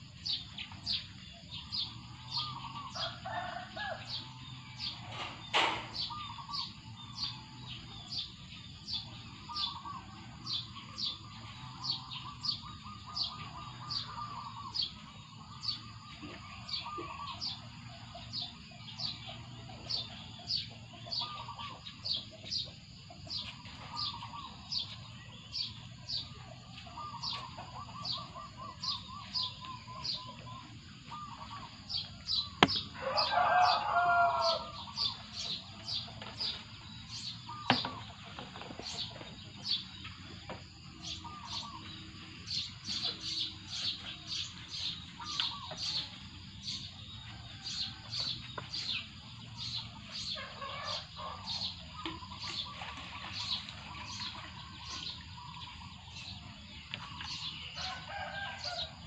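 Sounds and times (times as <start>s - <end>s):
birds trilling: 0.0s - 59.0s
rooster crowing: 2.9s - 4.2s, 32.6s - 35.0s, 57.8s - 59.0s.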